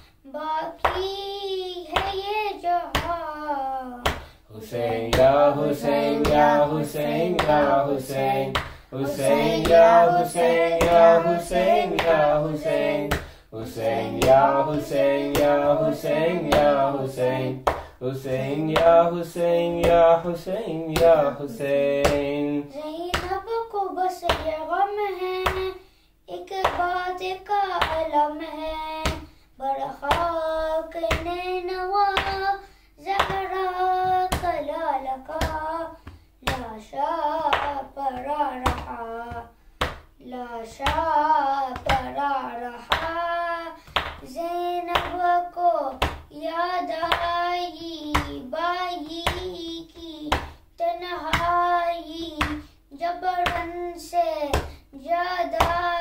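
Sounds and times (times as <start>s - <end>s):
rhythmic chest-beating: 0.8s - 23.5s, 26.6s - 56.0s
solo voice chanting lament: 2.7s - 22.9s.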